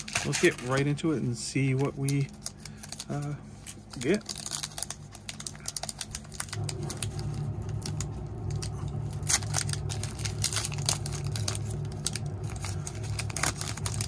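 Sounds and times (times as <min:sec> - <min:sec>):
foil wrapper crinkling and tearing: 0:00.0 - 0:14.0
low steady hum: 0:00.0 - 0:14.0.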